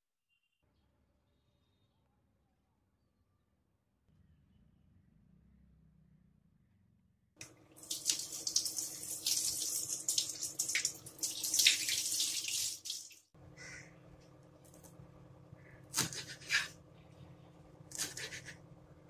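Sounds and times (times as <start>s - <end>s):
tap water splashing into sink: 7.4s - 13.2s.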